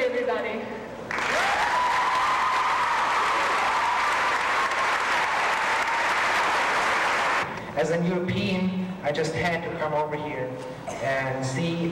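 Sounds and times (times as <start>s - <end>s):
audience applauding: 1.1s - 7.5s.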